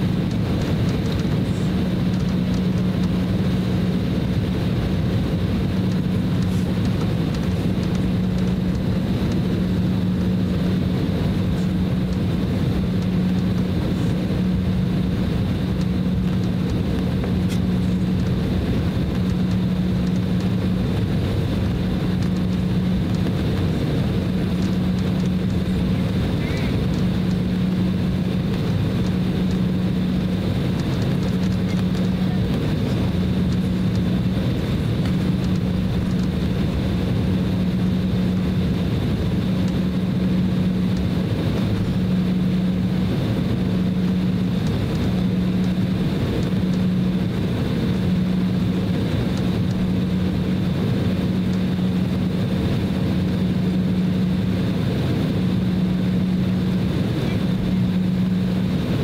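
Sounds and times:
airliner cabin engine hum: 0.0 - 59.0
faint high whine: 0.0 - 59.0.

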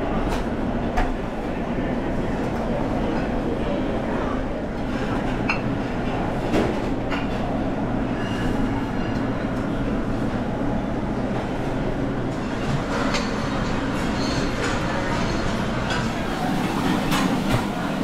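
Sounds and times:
crowd noise: 0.0 - 18.0
ventilation rumble: 0.0 - 18.0
dishes clinking: 12.4 - 17.9.

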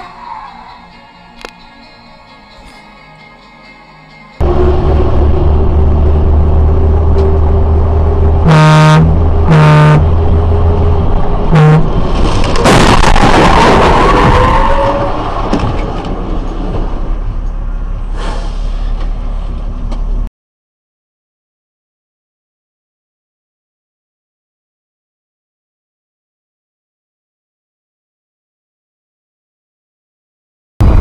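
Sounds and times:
road noise: 1.0 - 20.3, 30.8 - 31.0
truck engine running loudly: 4.4 - 12.5
truck horn blasts: 8.3 - 10.4, 11.4 - 12.1
car crashing into truck: 12.1 - 14.6.

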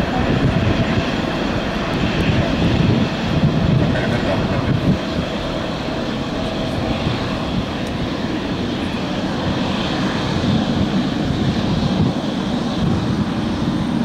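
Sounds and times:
jet engines roaring at takeoff: 0.0 - 14.0.

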